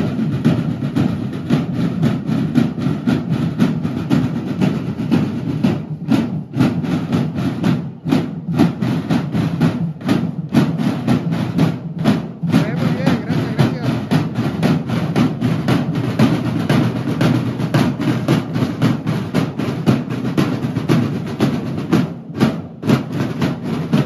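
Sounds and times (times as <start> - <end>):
snare drums playing march beat: 0.0 - 24.0.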